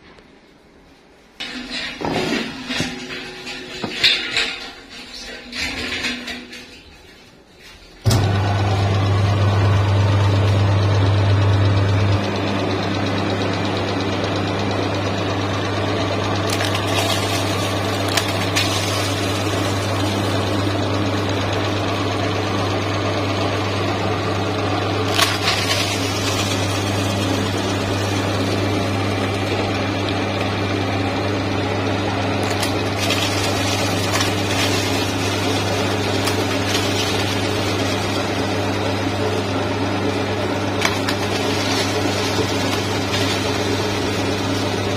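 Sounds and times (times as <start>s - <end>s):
meat grinder motor humming: 8.1s - 44.9s
cookies crunching in grinder: 15.2s - 44.9s.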